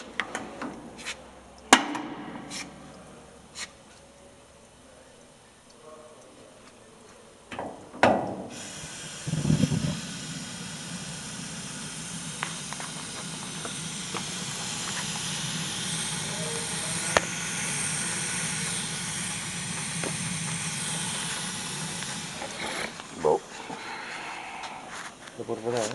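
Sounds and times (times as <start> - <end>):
loud low rush of gas lighting: 0.0 - 25.9
gas burner hissing: 0.9 - 3.8, 7.6 - 25.9
gas igniter clicks: 7.8 - 23.1.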